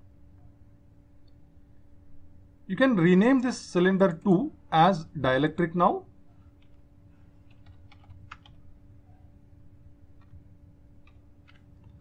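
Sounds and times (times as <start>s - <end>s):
steady low hum: 0.0s - 12.0s
computer keyboard typing: 7.4s - 8.6s, 10.2s - 10.4s, 11.0s - 12.0s.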